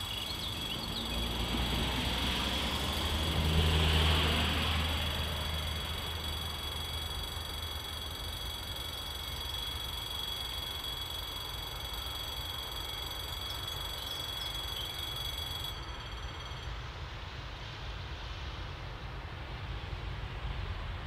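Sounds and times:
level crossing bell ringing: 4.7s - 16.7s.

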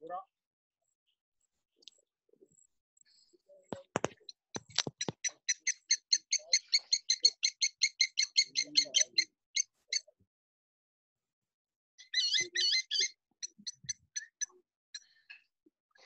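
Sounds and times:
sharp clicks: 3.8s - 5.4s.

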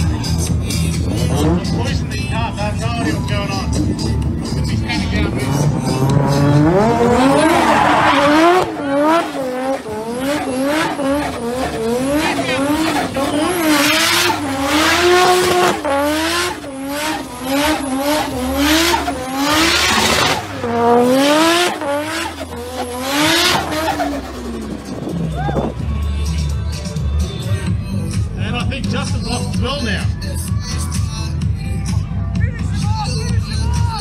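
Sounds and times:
car engine revving hard: 1.0s - 2.2s, 3.8s - 25.3s.

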